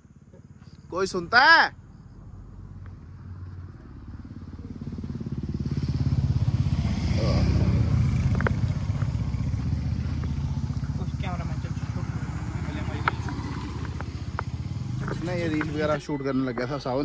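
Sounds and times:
motorcycle engine passing: 0:02.3 - 0:17.0.

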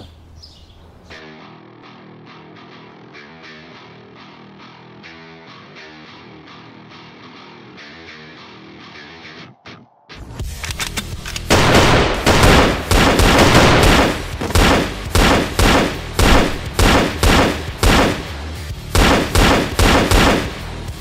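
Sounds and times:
background music: 0:01.1 - 0:21.0
gunshots: 0:11.4 - 0:20.9.

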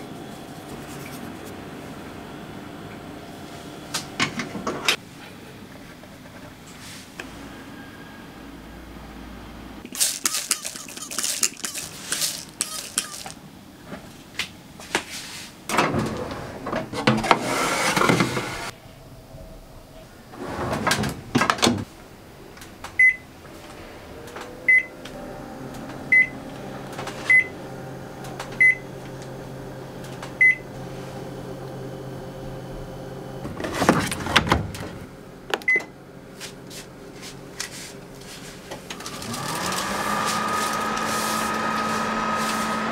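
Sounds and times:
spray bottle squirts: 0:09.9 - 0:13.4
microwave touch panel beeps: 0:23.0 - 0:23.2, 0:26.1 - 0:26.3, 0:27.3 - 0:27.5, 0:28.6 - 0:28.8, 0:30.4 - 0:30.6.

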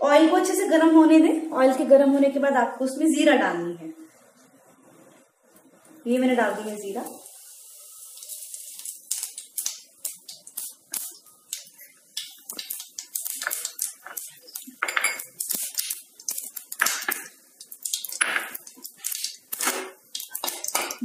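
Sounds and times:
seeds sizzling and popping in oil: 0:05.8 - 0:21.0.

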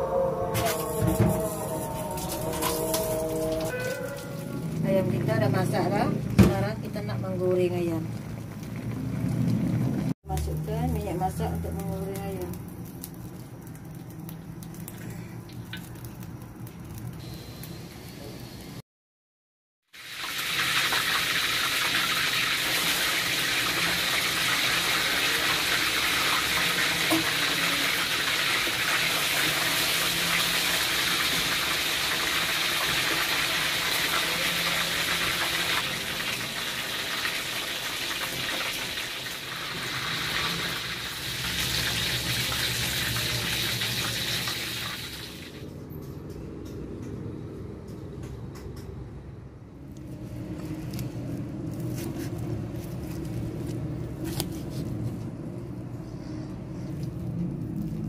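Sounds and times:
chicken deep-frying in oil: 0:00.0 - 0:18.8, 0:19.9 - 0:45.7.

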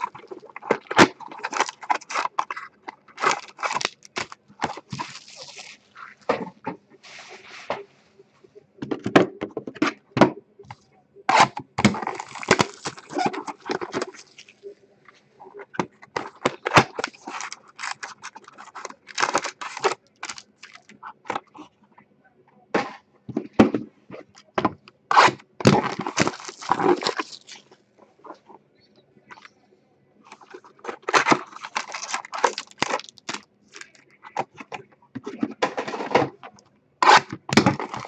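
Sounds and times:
plastic wrapping crinkling: 0:00.0 - 0:06.3, 0:11.8 - 0:14.7, 0:16.2 - 0:21.0, 0:25.7 - 0:27.8, 0:30.3 - 0:34.4.

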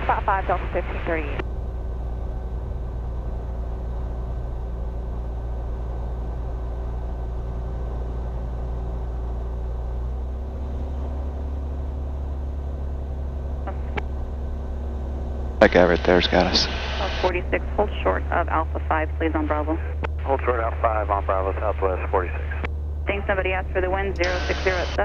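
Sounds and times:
piston aircraft engine droning: 0:00.0 - 0:25.0.

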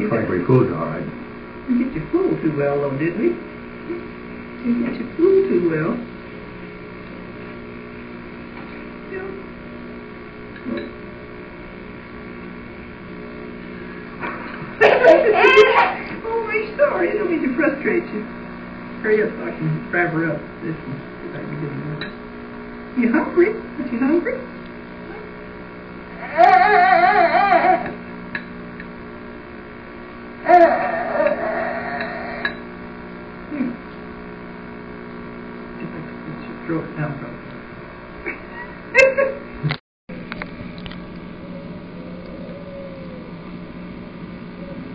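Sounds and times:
steady electrical hum: 0:00.0 - 0:44.9
baby crying: 0:14.8 - 0:16.0, 0:26.2 - 0:28.0, 0:30.4 - 0:32.5, 0:41.5 - 0:43.3.

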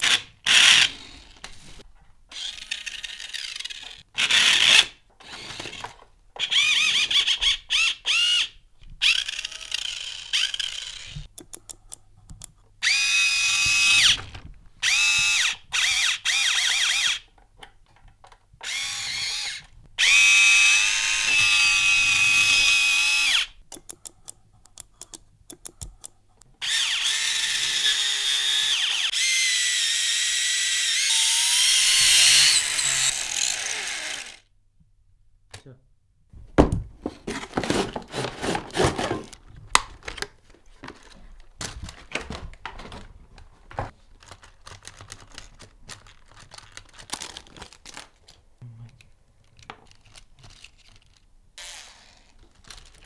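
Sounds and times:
toy electric motor whining: 0:00.0 - 0:01.4, 0:02.3 - 0:11.3, 0:14.8 - 0:17.2, 0:18.6 - 0:23.6, 0:26.6 - 0:34.5, 0:51.6 - 0:52.9.

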